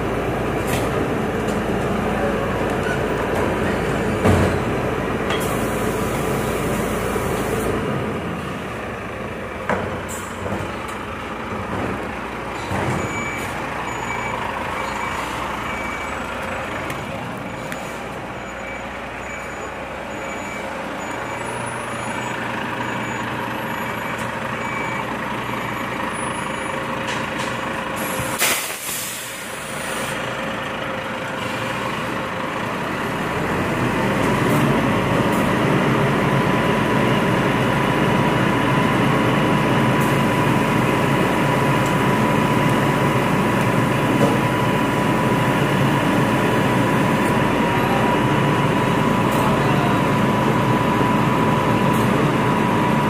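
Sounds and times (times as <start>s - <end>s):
diesel truck engine running: 0.0s - 53.0s
reversing alarm beeping: 12.6s - 26.7s
air brake hiss: 28.0s - 30.2s.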